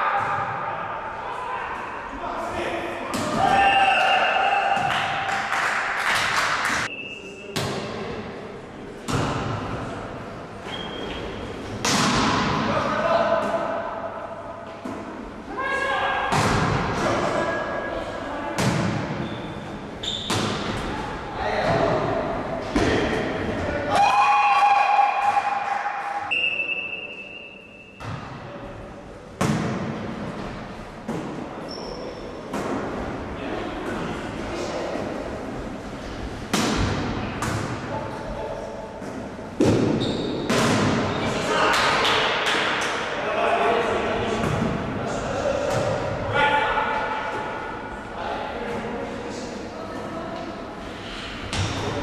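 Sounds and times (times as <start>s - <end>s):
players' voices: 0.0s - 30.3s, 31.0s - 52.0s
court noise: 0.0s - 52.0s
whistle blast: 26.3s - 28.0s.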